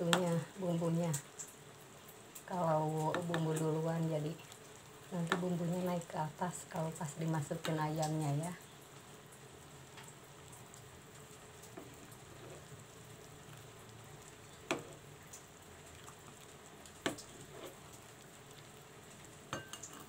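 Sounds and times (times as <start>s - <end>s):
broth bubbling in a wok: 0.0s - 20.0s.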